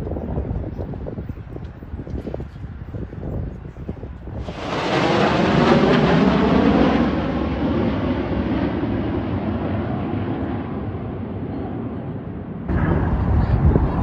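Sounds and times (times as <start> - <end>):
jet engine roar: 3.7 - 14.0.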